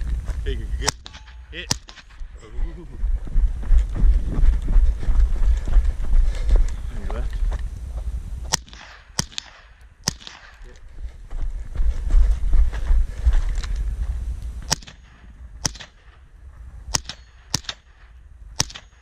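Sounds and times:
low rumbling microphone noise: 0.0s - 17.0s
rifle shots with echo: 0.8s - 2.3s, 8.5s - 10.8s, 14.7s - 16.3s, 16.9s - 19.0s.

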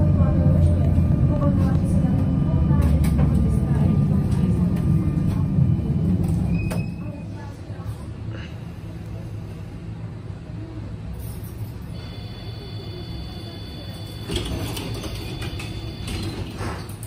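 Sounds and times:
tram doors closing clatter: 0.0s - 7.5s, 11.2s - 17.0s
tram low hum: 0.0s - 17.0s
door warning tone: 12.0s - 16.4s.

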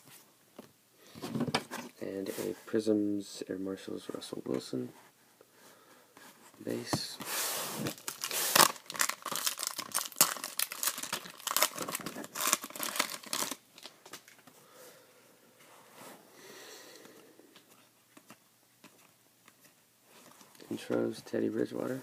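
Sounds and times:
faint handling sounds: 0.0s - 8.6s, 17.0s - 22.0s
foil wrapper tearing and crinkling: 7.9s - 13.9s.

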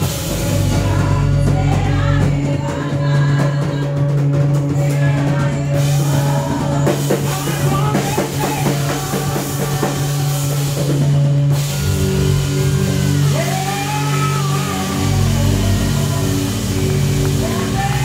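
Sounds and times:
drum kit beat: 0.0s - 18.0s
person singing: 0.0s - 18.0s
held chords ringing: 6.5s - 18.0s.

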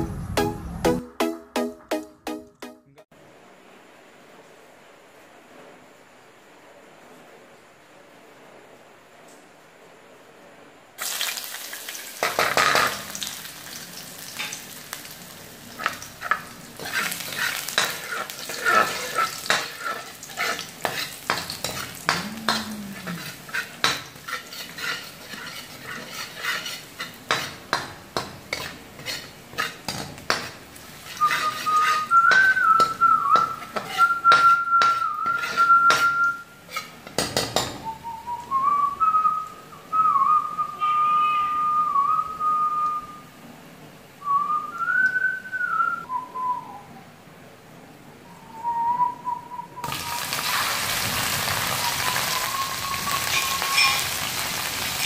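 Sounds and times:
garlic sizzling in a wok: 11.0s - 38.0s, 49.8s - 55.0s
metal ladle scraping a pan: 15.8s - 37.6s, 53.1s - 55.0s
wavering whistle: 31.2s - 36.5s, 37.8s - 43.3s, 51.6s - 54.0s.

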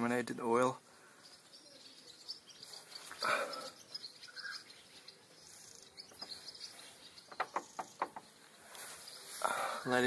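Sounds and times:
birds chirping: 0.0s - 10.0s
insects chirping: 0.8s - 9.8s.

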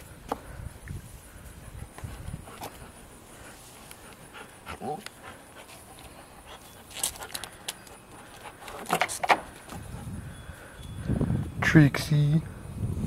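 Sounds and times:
dog panting: 1.4s - 9.0s.

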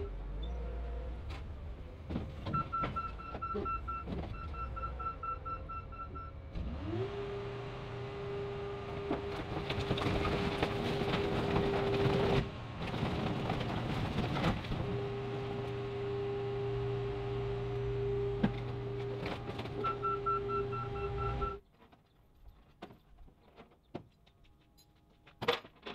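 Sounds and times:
hydraulic power unit whine: 14.8s - 21.6s.

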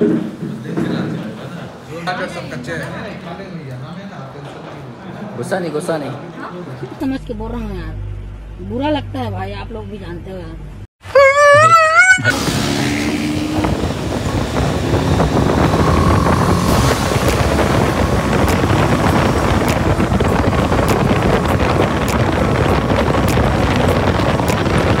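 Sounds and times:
wind noise on microphone: 11.6s - 25.0s
motorcycle engine running: 13.2s - 25.0s.

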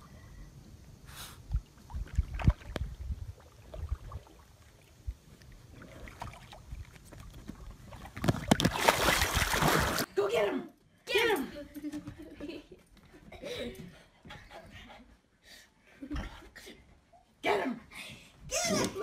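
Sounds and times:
wind rumbling on microphone: 0.5s - 8.7s
dog splashing into water: 7.9s - 10.1s.

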